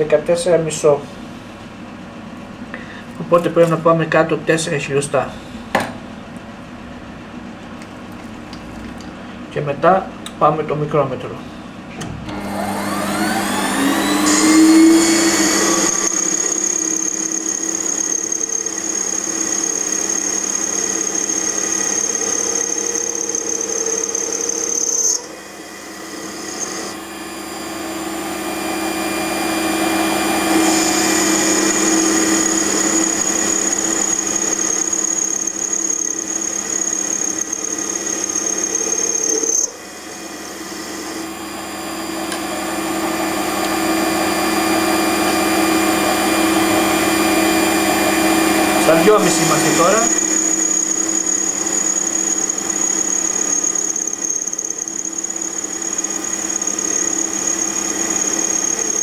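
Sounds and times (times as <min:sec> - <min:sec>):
lathe tool cutting metal shaft: 0:12.3 - 0:59.0
metal lathe motor whine: 0:12.3 - 0:59.0.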